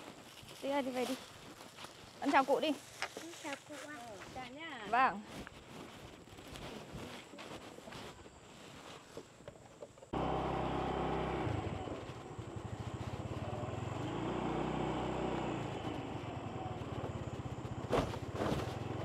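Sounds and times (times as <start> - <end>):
vehicle engine running: 10.2 - 19.0.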